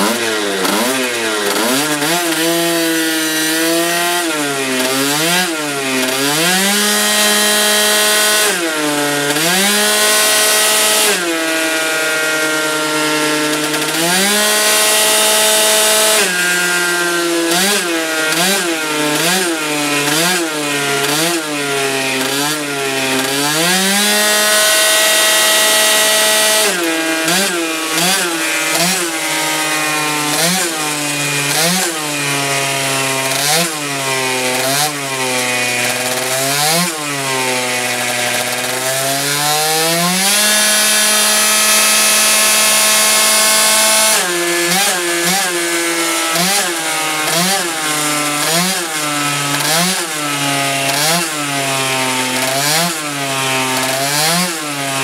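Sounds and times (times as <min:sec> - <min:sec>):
dyno roller: 0:00.0 - 0:55.0
scooter engine revving: 0:00.0 - 0:55.0.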